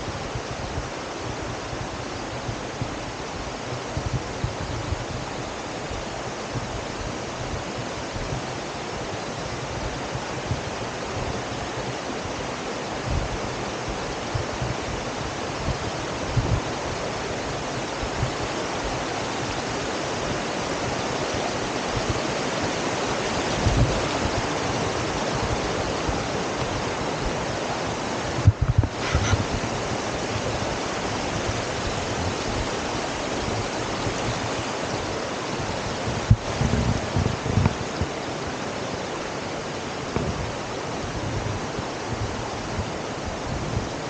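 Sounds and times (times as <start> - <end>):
creek water rushing over rocks: 0.0 - 44.0
low thumps: 28.4 - 29.6.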